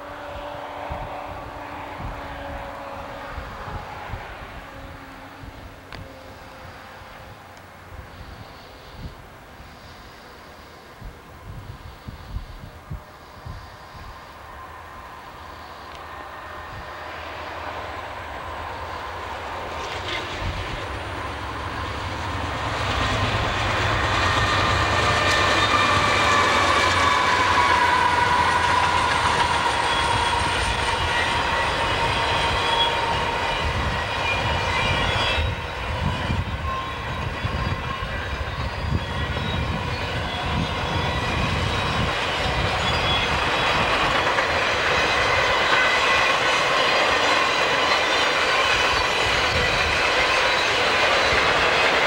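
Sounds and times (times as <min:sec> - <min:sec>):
train wheels clattering over rails: 0:18.4 - 0:52.0.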